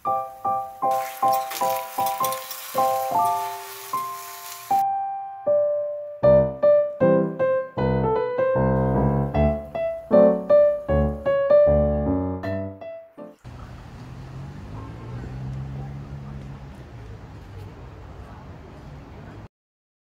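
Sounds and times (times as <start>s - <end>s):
gentle piano melody: 0.0s - 13.5s.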